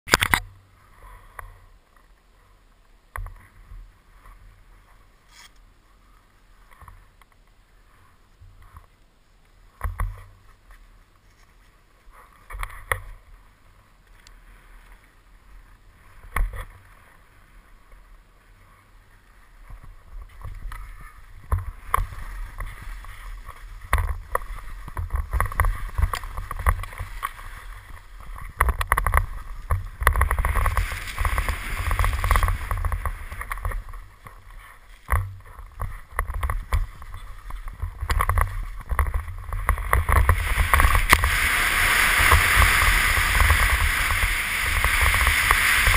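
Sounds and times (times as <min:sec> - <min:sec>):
wind rumbling on microphone: 0:09.6 - 0:45.9
skis scraping on snow: 0:14.4 - 0:45.9.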